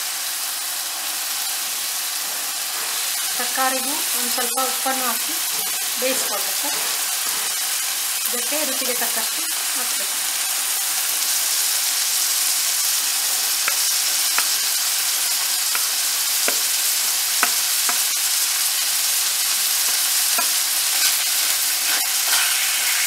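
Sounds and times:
vegetables sizzling in hot oil: 0.0 - 23.0
wooden spatula scraping and clicking: 19.8 - 22.6.

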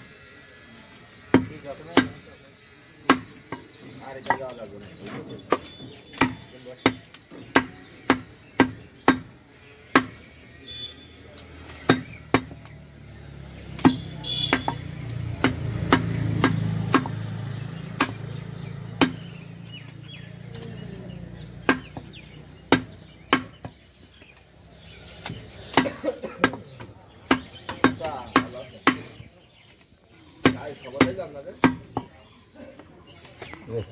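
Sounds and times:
cleaver chopping meat: 1.3 - 24.2, 25.0 - 29.3, 30.4 - 32.2.

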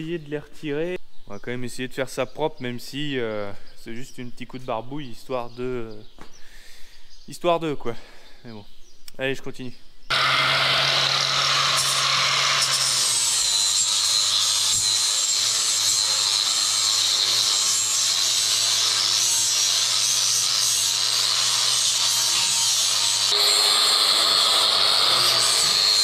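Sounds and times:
angle grinder grinding steel: 10.1 - 26.0.

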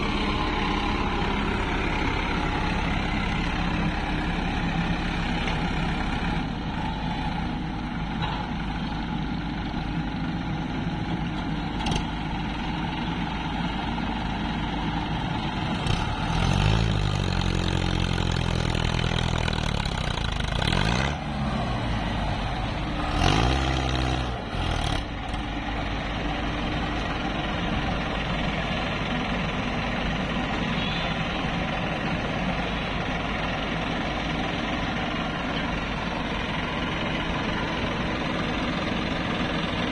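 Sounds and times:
diesel engines running: 0.0 - 39.9
engine revving: 15.7 - 25.5.

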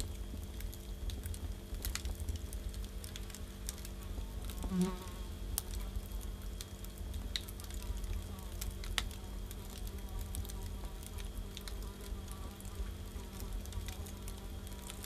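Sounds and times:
firewood crackling and popping: 0.0 - 15.0
low rumble of flames: 0.0 - 15.0.

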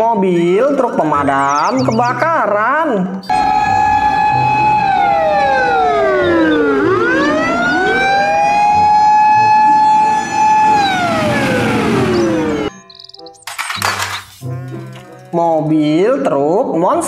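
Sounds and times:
fire engine siren wailing: 3.3 - 12.7
second overlapping siren wail: 3.3 - 12.7.

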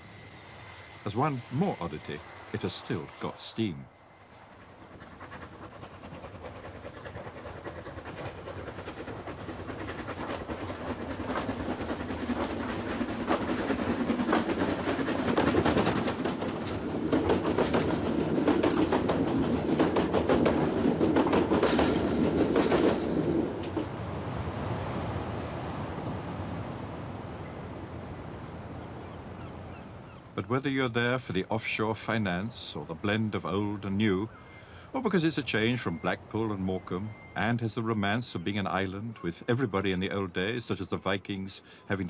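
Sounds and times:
steam locomotive passing: 0.0 - 26.7, 27.3 - 42.0
train wheels clicking on rails: 4.2 - 23.9.

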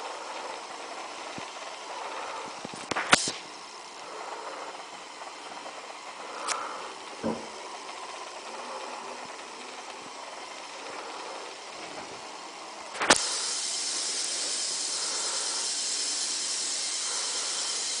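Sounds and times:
small electric motors whirring: 0.0 - 18.0
water splashing hiss: 13.0 - 17.8.

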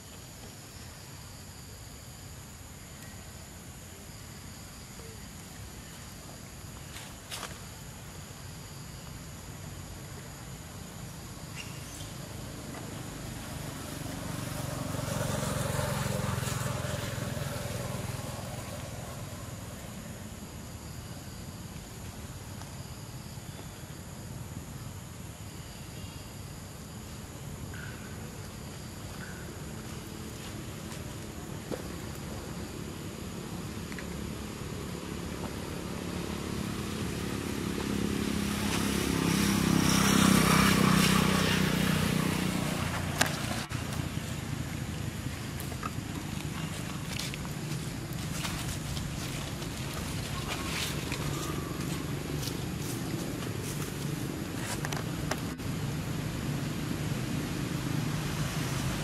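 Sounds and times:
vehicle engine droning: 29.2 - 59.0.

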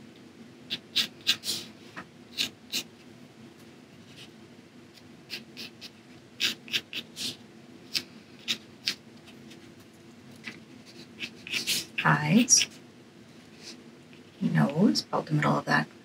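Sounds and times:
pencil scratching on paper: 5.3 - 9.5, 10.8 - 12.8.

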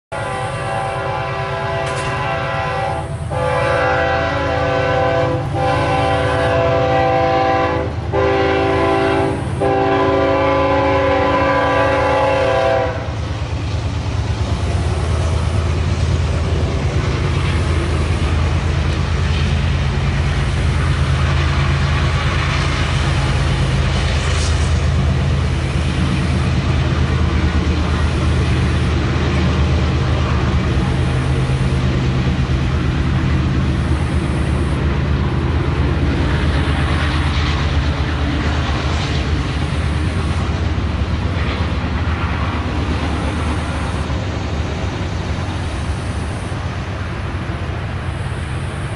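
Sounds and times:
locomotive air horn blasts: 0.1 - 13.2
diesel locomotive rumble: 0.1 - 48.9.

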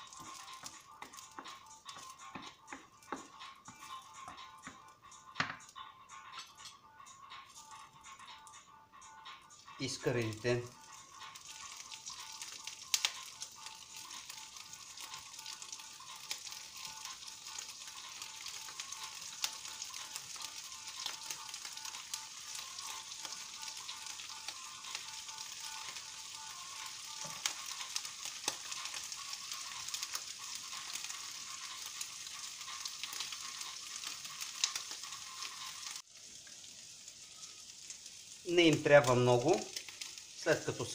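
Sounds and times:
prawns sizzling in hot oil: 0.0 - 40.9
crackles and pops: 10.4 - 40.9.

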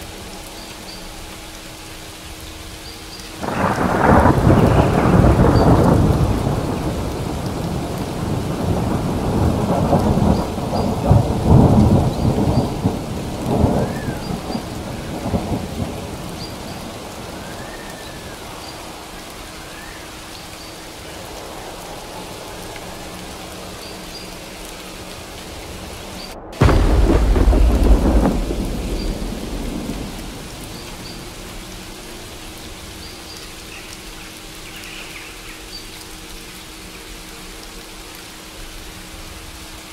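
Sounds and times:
steady rain: 0.0 - 39.9
rolling thunder: 3.4 - 19.5, 21.2 - 33.0.

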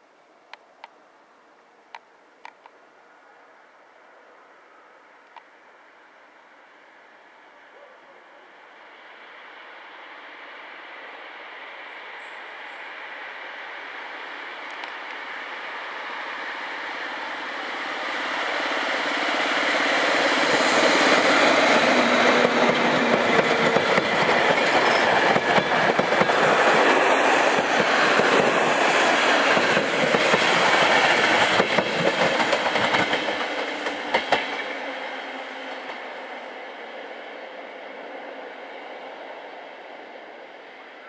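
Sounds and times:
train rumbling past: 8.6 - 41.0.

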